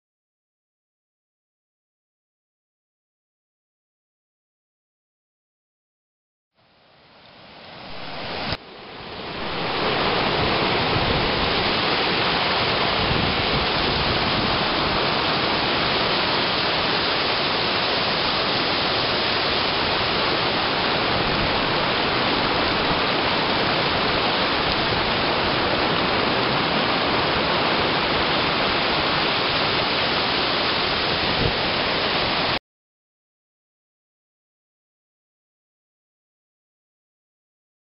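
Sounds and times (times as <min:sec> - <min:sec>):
waterfall rushing over rocks: 0:06.7 - 0:32.6.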